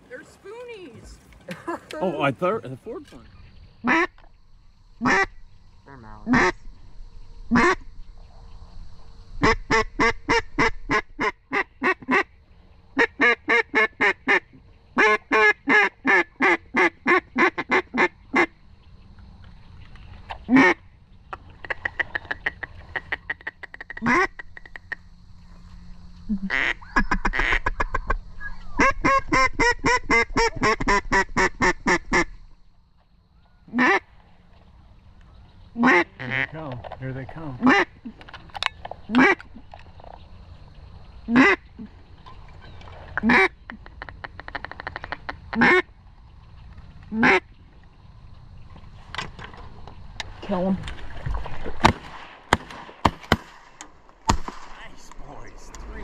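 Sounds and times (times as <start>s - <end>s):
duck quacking: 3.8s - 4.2s, 5.0s - 5.4s, 6.2s - 6.6s, 7.5s - 7.8s, 20.5s - 24.9s, 26.3s - 28.1s, 33.7s - 34.1s, 35.8s - 36.5s, 37.6s - 38.0s, 39.1s - 39.4s, 41.3s - 41.9s, 43.2s - 45.9s, 47.1s - 47.5s.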